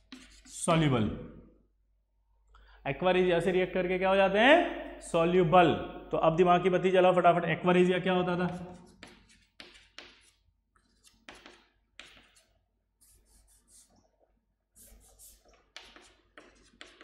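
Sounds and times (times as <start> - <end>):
chalk scratching on chalkboard: 0.0 - 0.8, 8.5 - 17.0.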